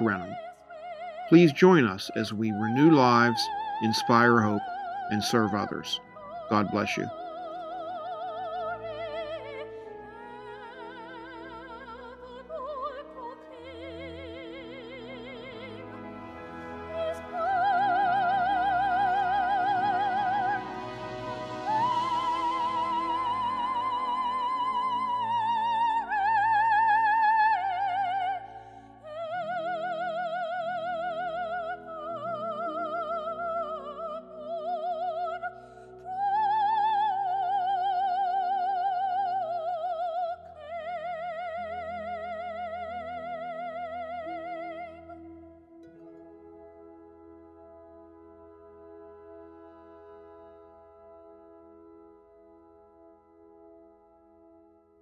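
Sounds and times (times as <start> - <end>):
operatic voice singing carol: 0.0 - 0.4, 1.3 - 7.4
soft accompaniment: 0.0 - 55.0.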